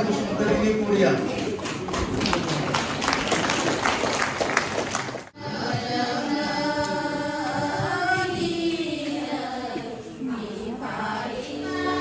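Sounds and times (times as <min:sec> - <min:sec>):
noisy crowd: 0:00.0 - 0:12.0
hand claps: 0:01.6 - 0:05.3
women singing a hymn: 0:05.4 - 0:12.0.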